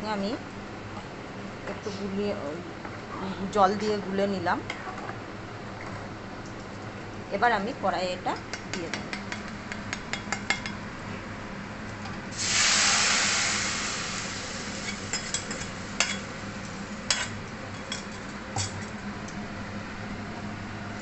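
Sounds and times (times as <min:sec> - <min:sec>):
paste sizzling in hot oil: 0:12.3 - 0:16.2.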